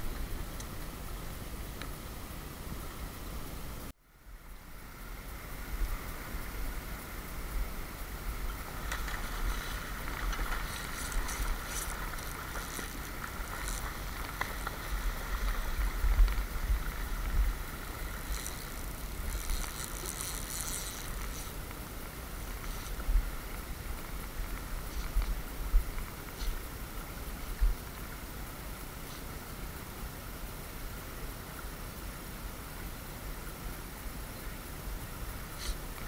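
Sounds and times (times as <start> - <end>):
wind rumbling on microphone: 0.0 - 30.0.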